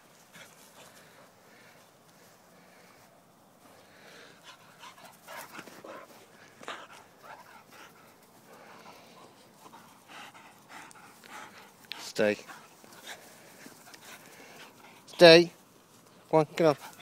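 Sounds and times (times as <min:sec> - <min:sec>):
dog panting: 0:04.3 - 0:15.6, 0:16.6 - 0:17.0.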